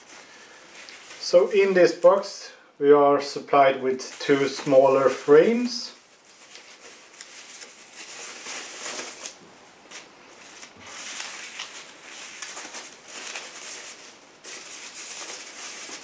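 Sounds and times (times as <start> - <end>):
packaging wrap crinkling: 4.0 - 16.0.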